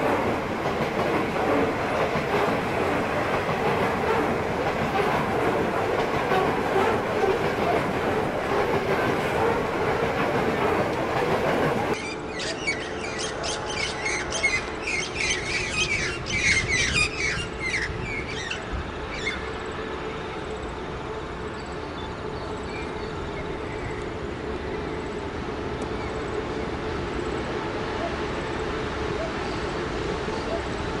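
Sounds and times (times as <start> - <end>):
distant diesel locomotive hum: 0.0 - 31.0
train wagons rolling on rails: 0.0 - 31.0
bird chirps: 12.0 - 18.6.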